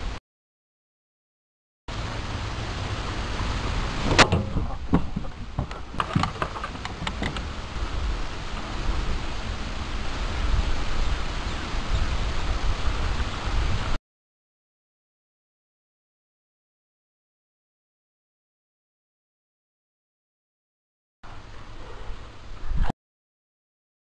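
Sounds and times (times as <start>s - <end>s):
low rumbling noise: 1.9s - 14.0s
knocks and clicks of fishing tackle: 4.1s - 7.5s.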